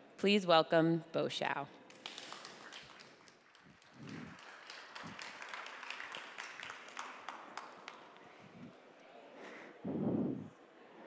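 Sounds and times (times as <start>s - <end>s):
faint audience applause: 1.9s - 8.5s.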